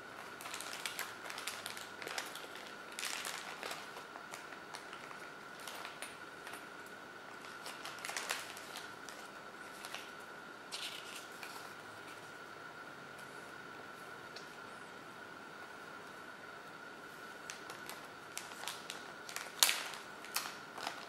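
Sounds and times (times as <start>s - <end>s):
plastic bag crinkling: 0.0s - 6.6s, 7.3s - 12.2s, 17.5s - 21.0s
faint high whine: 0.0s - 21.0s.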